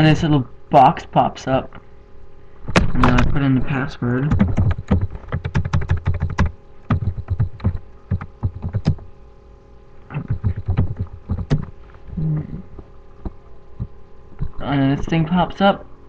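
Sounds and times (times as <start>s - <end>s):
keyboard keys tapping: 4.3s - 9.0s, 10.1s - 11.7s.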